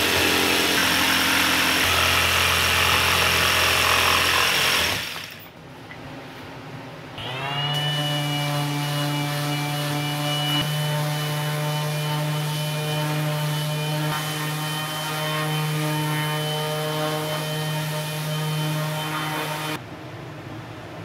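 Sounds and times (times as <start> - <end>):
jigsaw cutting plywood: 0.0 - 5.4.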